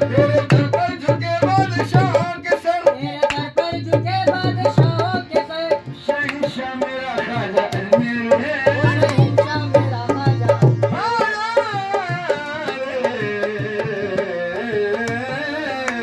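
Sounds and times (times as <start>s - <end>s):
hand drums beating: 0.0s - 16.0s
harmonium chords: 0.0s - 16.0s.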